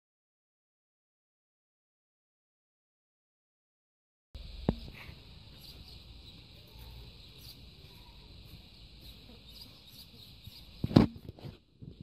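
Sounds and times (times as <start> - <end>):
high-pitched insect buzz: 4.4 - 11.2.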